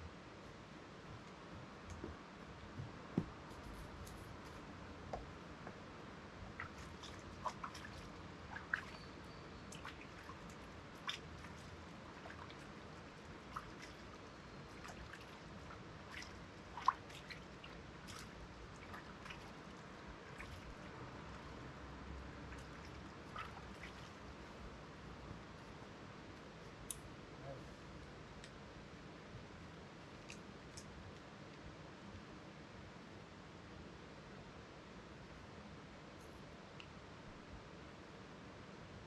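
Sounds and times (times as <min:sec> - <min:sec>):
stream babbling: 0:06.4 - 0:24.7
water drips and plops: 0:06.5 - 0:21.4, 0:22.4 - 0:24.2.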